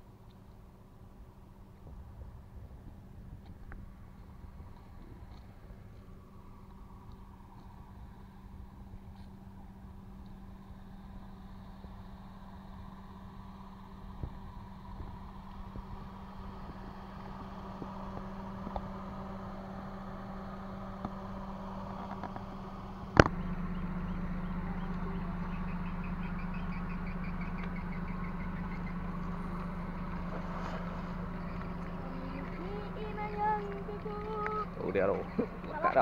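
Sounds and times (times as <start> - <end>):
steady low hum: 0.0 - 36.0.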